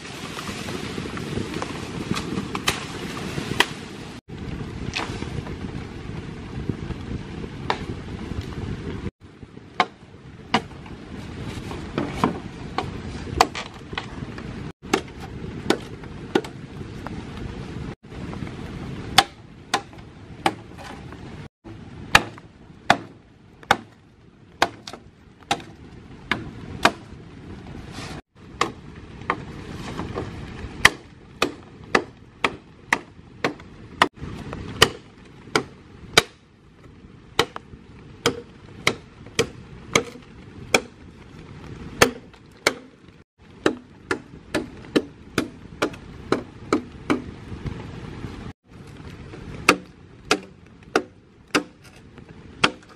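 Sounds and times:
machete chopping bamboo: 0:02.1 - 0:03.9, 0:09.8 - 0:10.8, 0:12.0 - 0:14.1, 0:14.8 - 0:16.6, 0:19.1 - 0:21.0, 0:21.7 - 0:24.0, 0:24.6 - 0:27.1, 0:30.8 - 0:34.2, 0:34.8 - 0:36.4, 0:37.4 - 0:41.0, 0:42.0 - 0:43.0, 0:43.6 - 0:47.4, 0:49.6 - 0:52.0, 0:52.6 - 0:52.9.

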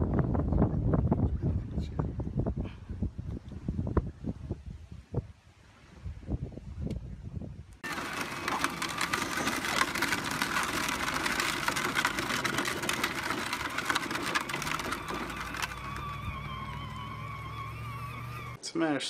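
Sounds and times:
wind rumble on microphone: 0:00.0 - 0:07.8
electric motor whining: 0:07.8 - 0:18.6
plastic wheels on gravel: 0:07.8 - 0:18.6.

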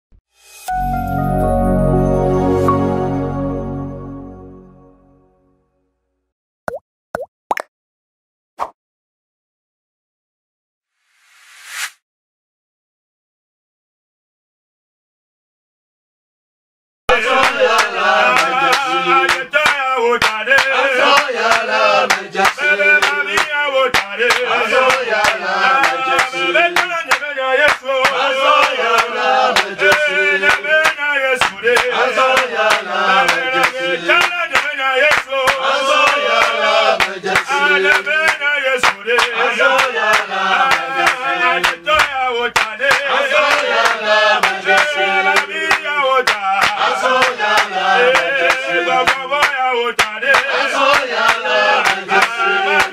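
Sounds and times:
hand claps: 0:17.1 - 0:52.9
men singing together: 0:17.1 - 0:52.9.

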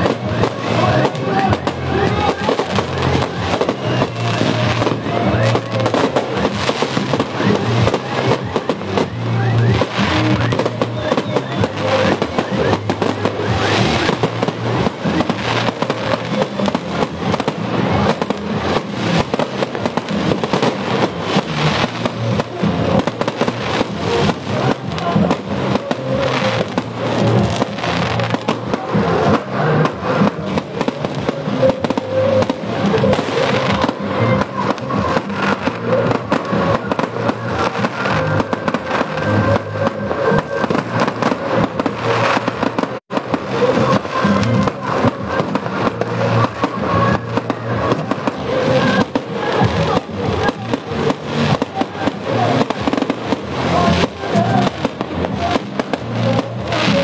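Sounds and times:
fireworks bangs and crackles: 0:00.0 - 0:57.0.

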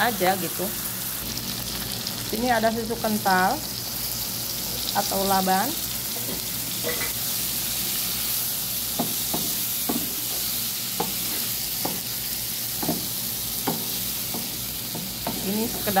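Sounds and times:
food sizzling in a frying pan: 0:00.0 - 0:16.0
spatula scraping and knocking pan: 0:09.0 - 0:16.0.

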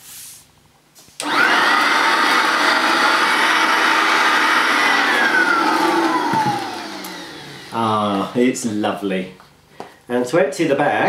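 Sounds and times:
vacuum cleaner motor whine: 0:01.2 - 0:08.5.

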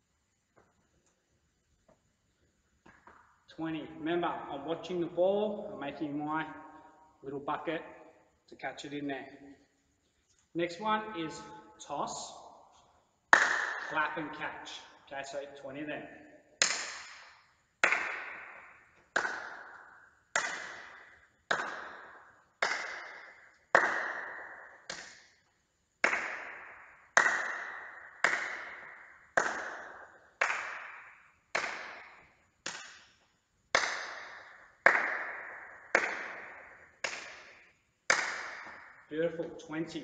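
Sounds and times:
hand claps echoing in hall: 0:02.8 - 0:05.0, 0:11.2 - 0:40.0.

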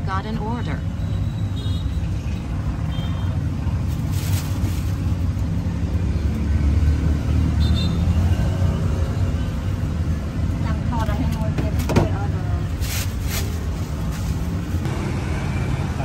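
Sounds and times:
street traffic rumble: 0:00.0 - 0:16.0.

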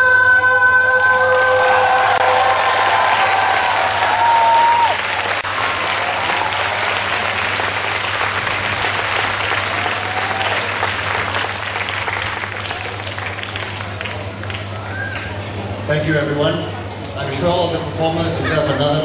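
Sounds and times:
audience applauding: 0:01.1 - 0:15.4.

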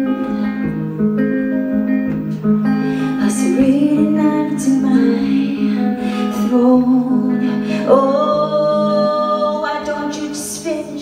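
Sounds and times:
clean electric guitar: 0:00.0 - 0:11.0
woman singing: 0:03.0 - 0:11.0.

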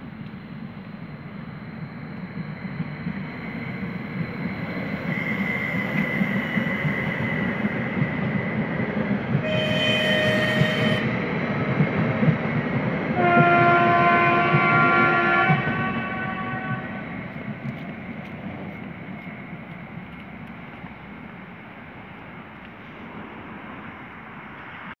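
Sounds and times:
train wheels rumbling on rails: 0:00.0 - 0:25.0
train horn blasts: 0:09.4 - 0:11.2, 0:13.2 - 0:17.0.

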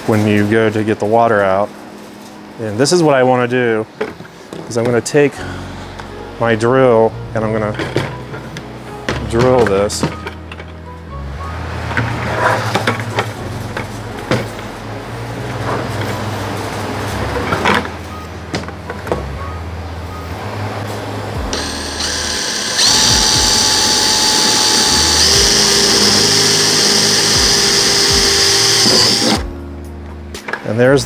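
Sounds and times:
drill motor whining: 0:21.5 - 0:29.4.

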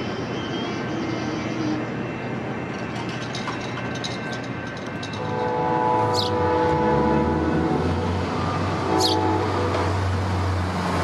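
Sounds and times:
train rumbling: 0:00.0 - 0:11.0
train horn chord: 0:05.2 - 0:10.1.

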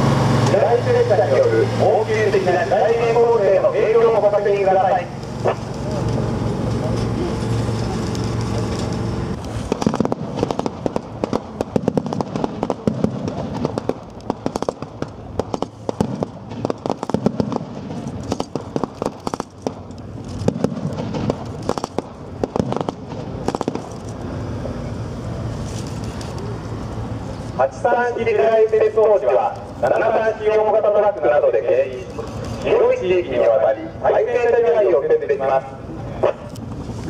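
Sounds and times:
diesel truck engine running: 0:00.0 - 0:37.0
blank gunfire shots: 0:09.7 - 0:19.8, 0:20.4 - 0:23.9.

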